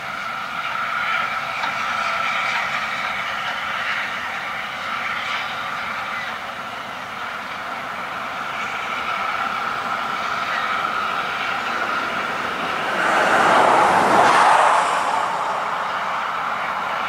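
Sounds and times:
carriages rolling along track: 0.0s - 17.0s
steam train passing: 0.0s - 17.0s.

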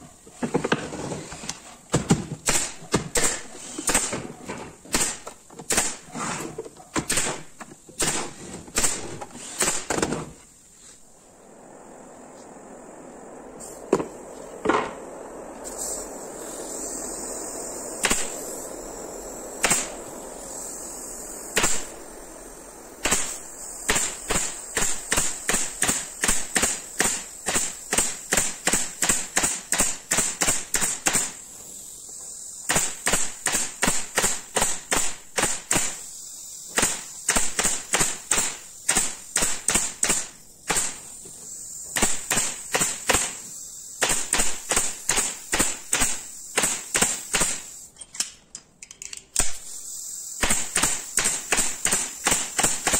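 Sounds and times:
pneumatic stapler firing: 0.4s - 10.4s, 18.0s - 18.5s, 19.6s - 20.1s, 21.5s - 22.0s, 23.0s - 31.4s, 32.6s - 52.9s.

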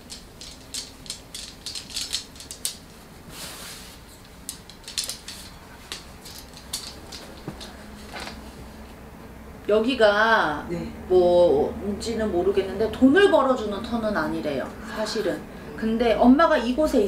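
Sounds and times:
small objects clicking and clinking: 0.0s - 2.9s, 4.2s - 7.7s
swishing rustle: 3.0s - 4.2s.

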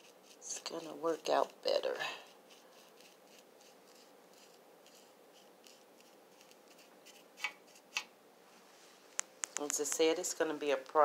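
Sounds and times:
paintbrush scratching: 0.0s - 8.1s.

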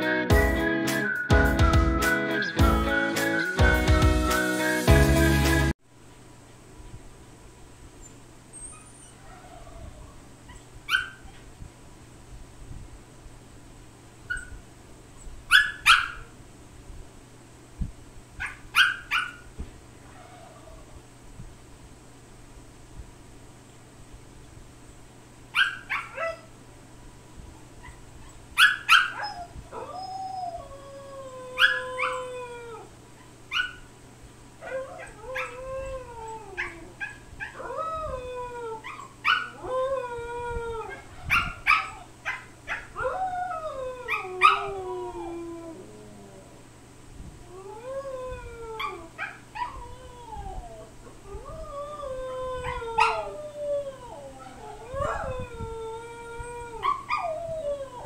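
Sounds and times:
dog yipping: 8.5s - 11.5s, 15.5s - 16.3s, 18.4s - 19.5s, 25.6s - 26.5s, 27.8s - 29.5s, 52.6s - 53.2s
dog howling: 8.9s - 10.3s, 28.6s - 32.9s, 34.6s - 46.6s, 47.5s - 58.0s.

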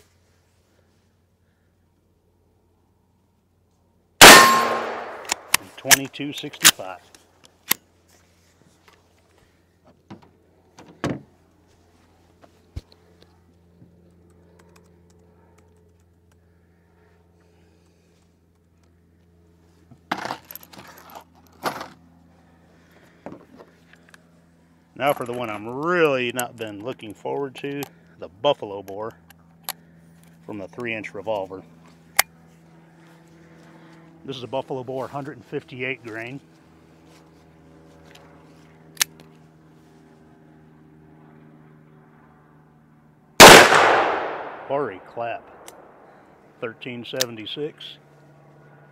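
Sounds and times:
low mechanical hum: 0.0s - 48.9s
sharp click: 4.2s - 6.8s.

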